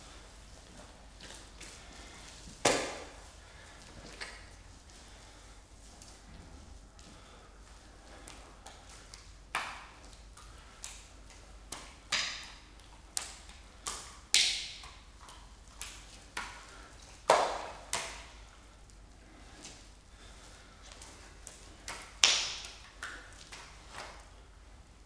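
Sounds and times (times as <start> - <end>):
wet slaps of hearts into hands: 8.2 - 10.2, 10.8 - 15.0, 17.2 - 18.4, 21.5 - 24.1.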